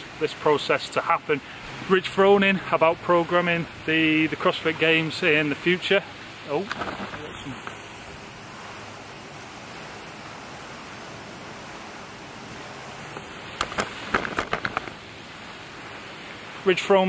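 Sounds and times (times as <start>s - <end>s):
fountain spray splashing: 0.0s - 17.0s
sharp clicks and knocks: 13.1s - 15.0s.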